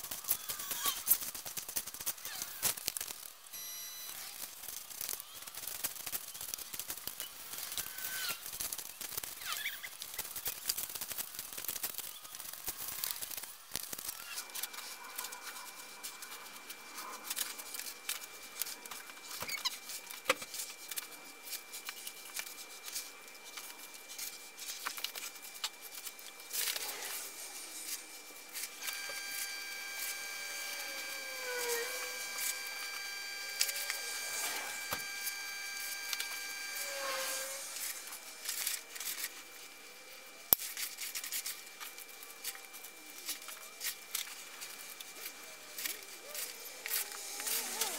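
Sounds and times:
trowel scraping gritty mix: 45.2s - 47.9s.

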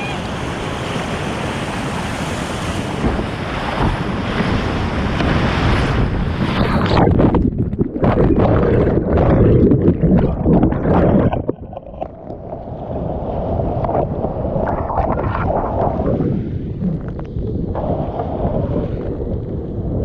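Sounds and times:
whitewater rushing and splashing: 0.0s - 7.1s.

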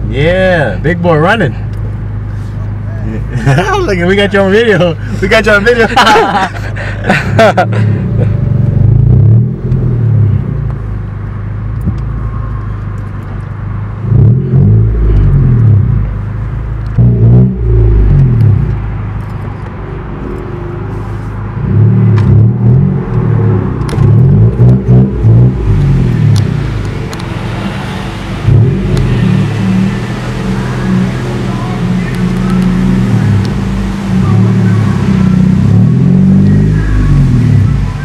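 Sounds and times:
car engine running slowly: 0.0s - 38.0s.

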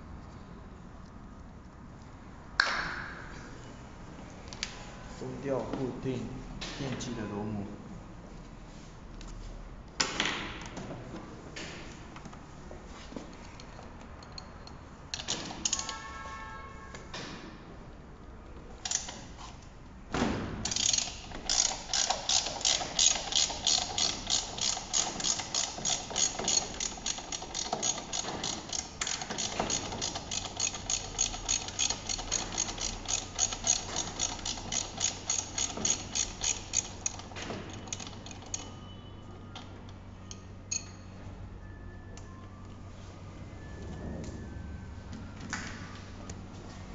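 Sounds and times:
ratcheting wrench clicking: 13.5s - 16.0s, 18.8s - 19.3s, 20.6s - 38.8s.

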